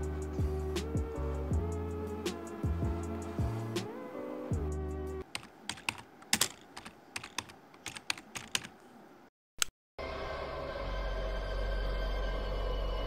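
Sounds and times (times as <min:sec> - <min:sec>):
laptop keyboard typing: 0:05.2 - 0:08.8
low eerie film score drone: 0:10.0 - 0:13.0.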